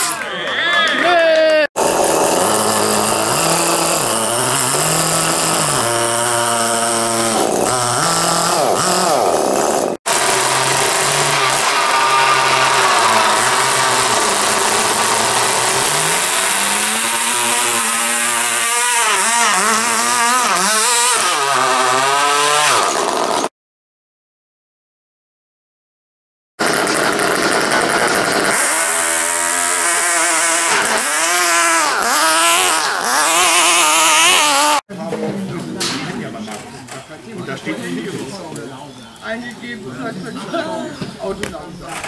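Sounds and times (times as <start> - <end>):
small model engines revving: 1.8 - 23.5, 26.6 - 34.9.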